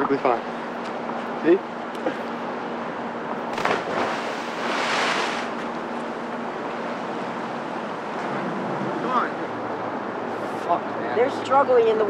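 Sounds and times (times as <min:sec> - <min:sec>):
wind: 0:00.0 - 0:12.0
river water: 0:02.0 - 0:12.0
body hitting water: 0:03.5 - 0:05.5
water splash: 0:03.5 - 0:05.6.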